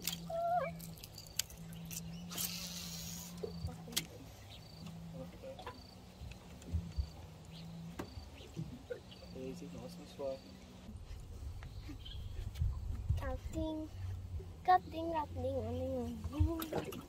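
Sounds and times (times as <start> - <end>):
electric trolling motor humming: 0.0 - 11.0
brief hiss: 2.3 - 3.4.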